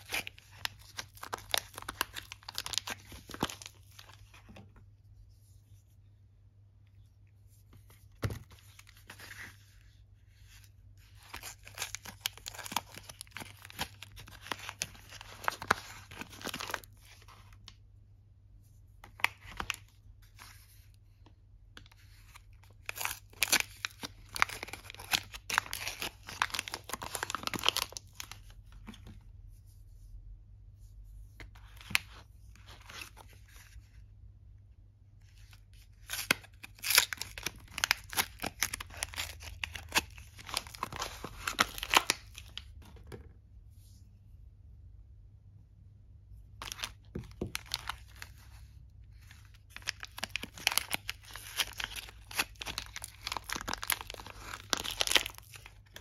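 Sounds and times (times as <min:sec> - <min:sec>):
soap wrappers tearing and crinkling: 0:00.0 - 0:04.4, 0:11.1 - 0:17.2, 0:22.3 - 0:28.6, 0:35.5 - 0:42.7, 0:46.6 - 0:48.5, 0:49.1 - 0:56.0.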